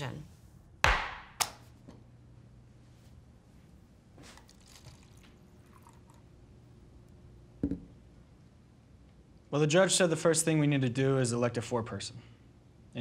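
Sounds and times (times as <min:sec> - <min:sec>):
low room hum: 0:00.0 - 0:13.0
sharp knock: 0:00.8 - 0:01.6
water poured into a cup: 0:04.3 - 0:06.5.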